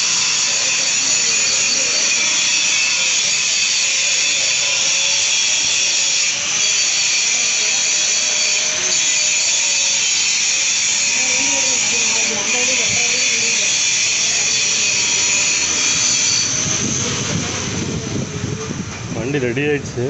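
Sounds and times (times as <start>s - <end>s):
power tool whirring: 0.0s - 19.1s.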